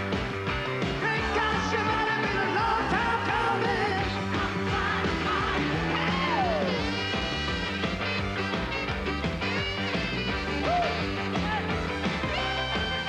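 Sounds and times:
drums: 0:00.0 - 0:13.0
person singing: 0:01.0 - 0:06.8.

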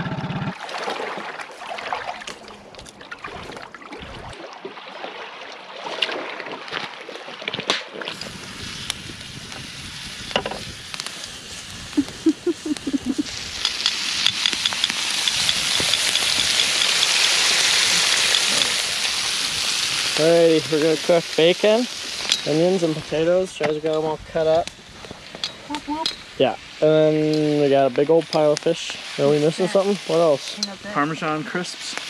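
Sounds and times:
bacon sizzling in a skillet: 0:08.1 - 0:32.0.

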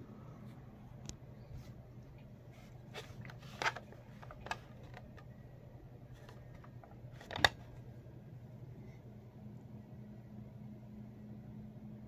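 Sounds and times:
low steady hum: 0:00.0 - 0:12.0
plastic clicks and knocks: 0:03.2 - 0:05.3, 0:06.2 - 0:07.6.

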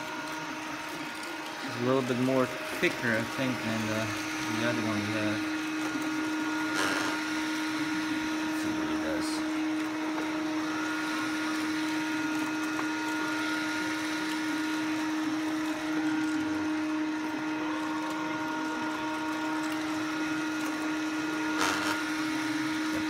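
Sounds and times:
robot vacuum humming: 0:00.0 - 0:23.0.

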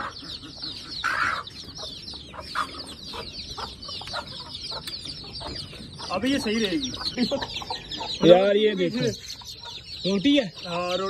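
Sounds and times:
chicks peeping: 0:00.0 - 0:11.0
hen calling: 0:00.0 - 0:11.0.

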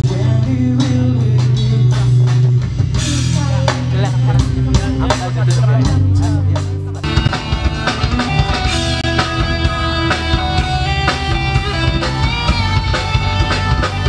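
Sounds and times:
rock band playing live: 0:00.0 - 0:14.0.

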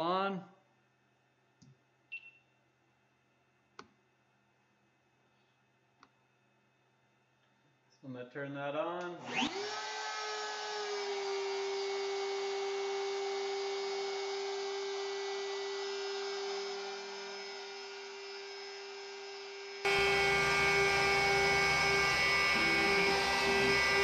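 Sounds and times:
router spindle whine: 0:09.2 - 0:24.0.

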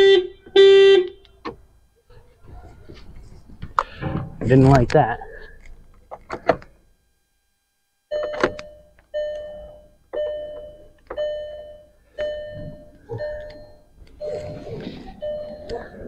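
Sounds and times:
car warning chime dinging: 0:08.1 - 0:16.0.

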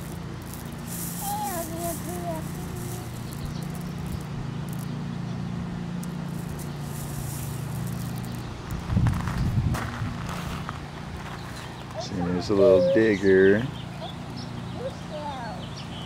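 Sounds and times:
gravel crunching and trickling: 0:00.0 - 0:12.6
steady low hum: 0:00.0 - 0:16.0
toddler babbling: 0:01.2 - 0:03.2, 0:12.0 - 0:13.3.

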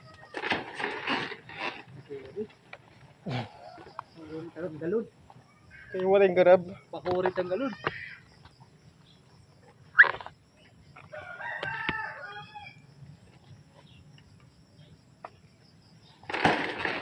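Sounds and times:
rooster crowing: 0:11.1 - 0:12.8.

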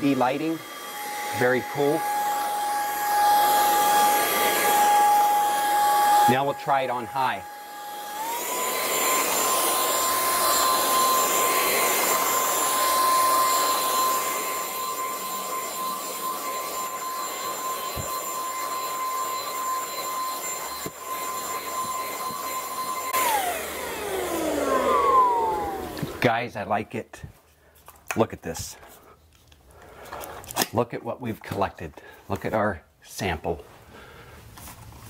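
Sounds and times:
vacuum cleaner motor whine: 0:00.0 - 0:26.3
vacuum rushing over carpet: 0:00.0 - 0:26.3.

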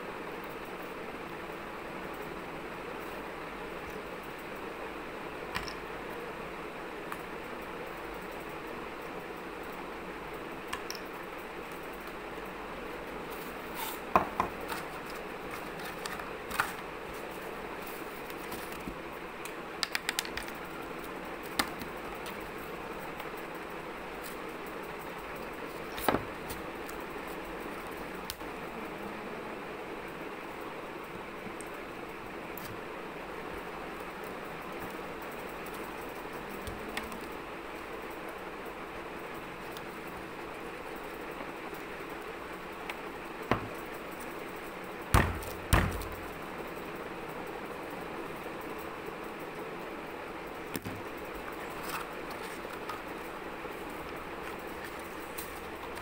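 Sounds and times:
steady background hum: 0:00.0 - 0:56.0.

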